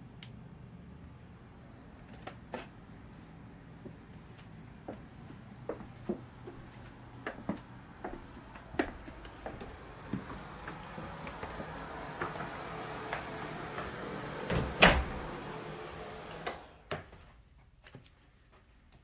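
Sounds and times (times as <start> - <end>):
steady hum: 0.0 - 17.0
door shutting clicks: 10.0 - 16.8.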